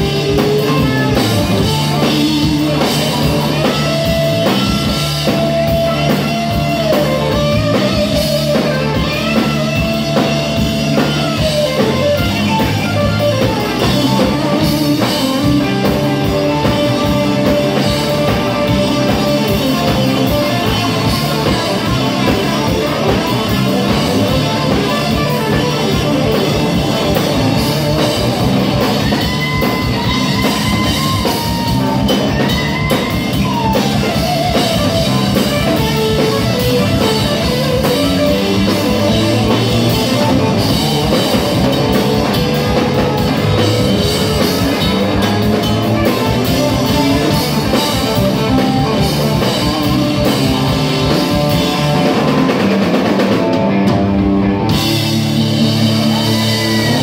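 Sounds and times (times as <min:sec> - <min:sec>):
drum kit: 0:00.0 - 0:57.0
electric guitar lead: 0:00.0 - 0:57.0.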